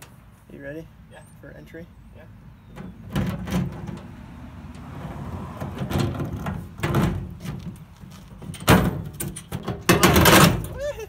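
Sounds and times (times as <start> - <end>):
metal box scraping and knocking: 5.6 - 7.8.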